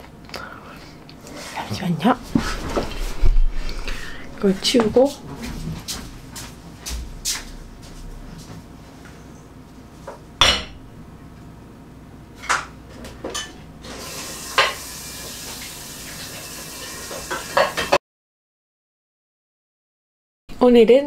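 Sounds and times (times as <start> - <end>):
dishes and cutlery clinking: 17.2 - 18.0.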